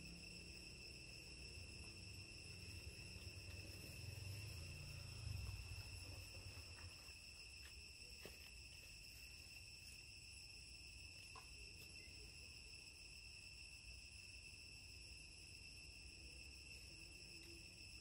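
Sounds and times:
high-pitched insect chorus: 0.0 - 18.0.

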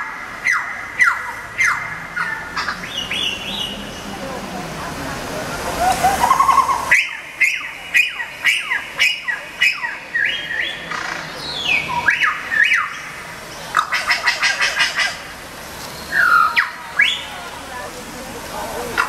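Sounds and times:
recorded bird calls on loudspeaker: 0.0 - 4.3, 6.0 - 15.3, 16.0 - 17.6.

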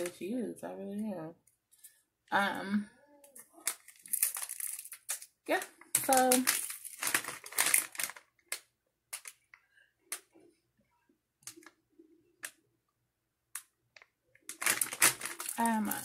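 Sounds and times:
plastic packaging crinkling: 3.3 - 10.2, 14.4 - 16.0.

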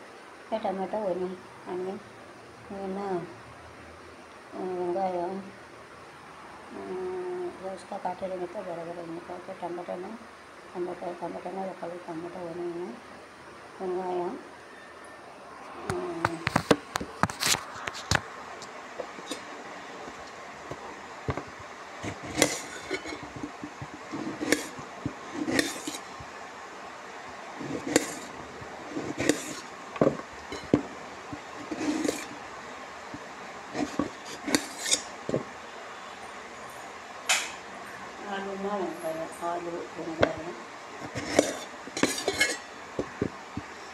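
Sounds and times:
metal utensils knocking and clinking: 41.1 - 43.3.

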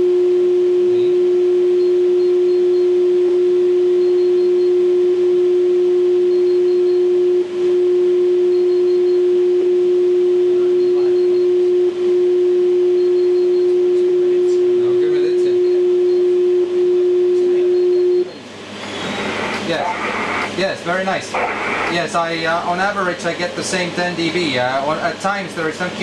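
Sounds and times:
steady radio tone: 18.8 - 22.4.

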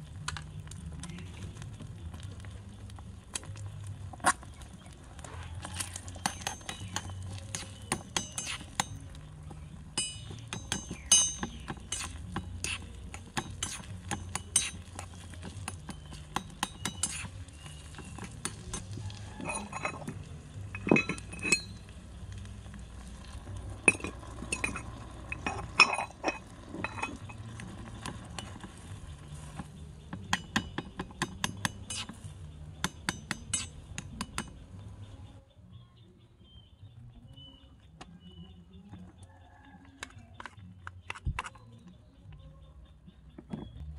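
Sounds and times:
metal spoon scraping metal wok: 5.6 - 9.1, 10.0 - 22.0, 23.2 - 29.6, 31.3 - 32.3.

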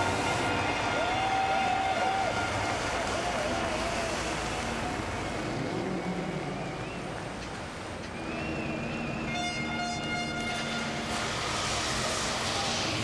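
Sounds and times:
stadium crowd noise: 0.0 - 13.0
wavering high whistle: 8.1 - 10.0
air horn blowing: 9.2 - 11.5.

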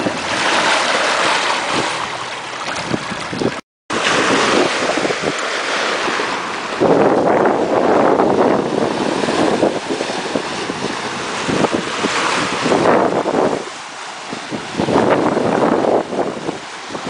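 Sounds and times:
water splashing along hull: 0.0 - 17.0
wind buffeting microphone: 0.0 - 17.0.

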